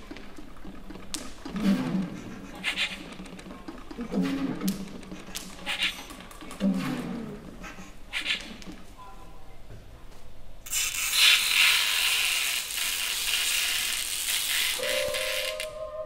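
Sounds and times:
steady held tone: 14.8 - 16.0.

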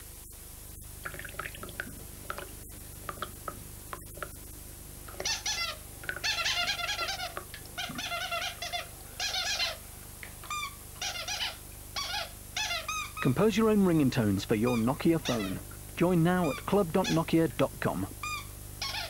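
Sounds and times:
high squeaky chirps: 10.5 - 13.4, 14.6 - 15.6, 16.2 - 17.4, 18.2 - 19.0.

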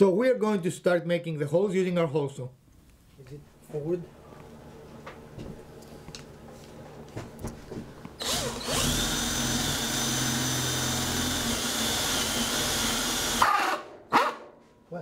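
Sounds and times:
drill high whine: 8.2 - 13.6
hole saw cutting wood: 8.2 - 13.8.

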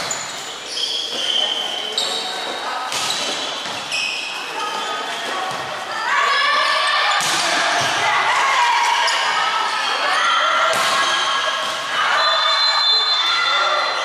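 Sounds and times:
people shouting: 5.9 - 14.0.

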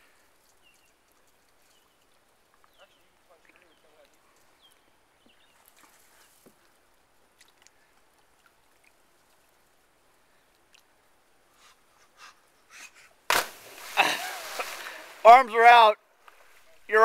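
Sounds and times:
faint clicks: 7.4 - 9.6
loud splash into water: 13.3 - 15.3.

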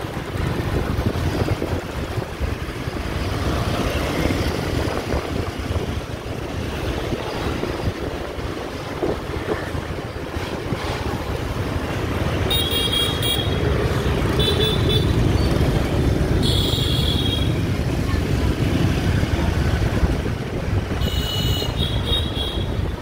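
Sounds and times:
wind buffeting microphone: 0.0 - 12.4, 17.6 - 21.2
scooter engine rumble: 0.0 - 23.0
scooter traffic: 0.0 - 23.0.

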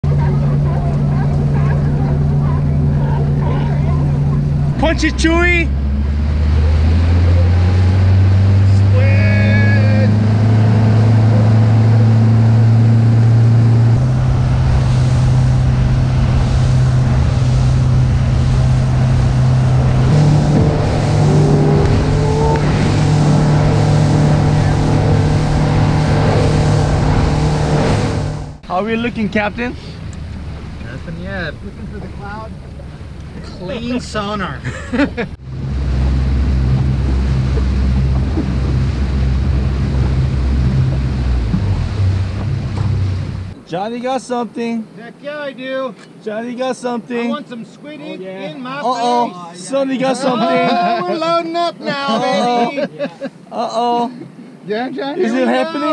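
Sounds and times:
motorboat engine running: 0.0 - 43.6
rushing wind: 0.0 - 43.7
rushing water: 0.0 - 45.0.

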